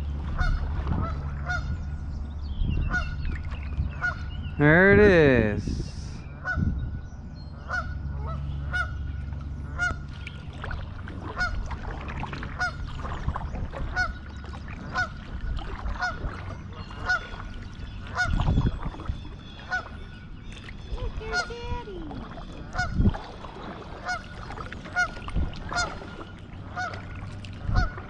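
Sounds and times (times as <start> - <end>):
low steady rumble: 0.0 - 28.0
geese honking: 0.3 - 1.7, 7.6 - 9.0, 11.3 - 11.6, 13.9 - 14.2, 16.0 - 17.5, 18.1 - 18.4, 19.6 - 20.0, 21.2 - 21.7, 22.7 - 23.0, 24.0 - 24.3, 24.9 - 27.1, 27.7 - 28.0.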